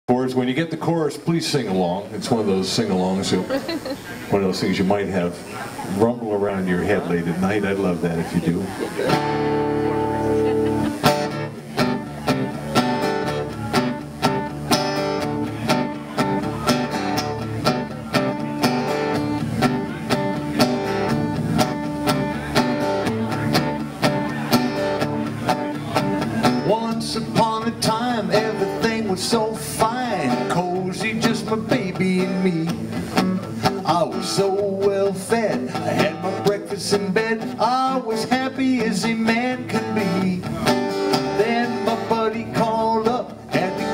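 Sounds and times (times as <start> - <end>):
acoustic guitar strumming: 0.1 - 43.9
man singing: 26.2 - 43.9.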